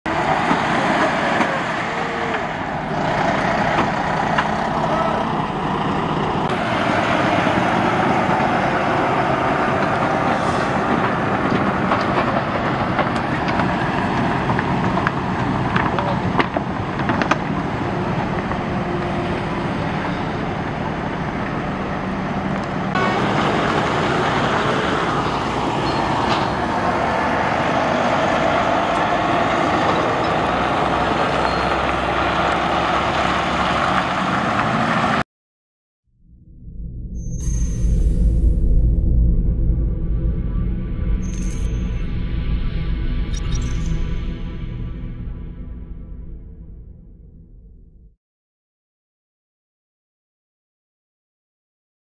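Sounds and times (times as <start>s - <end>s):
truck diesel engine running: 0.1s - 35.2s
tyre and road noise: 0.1s - 35.2s.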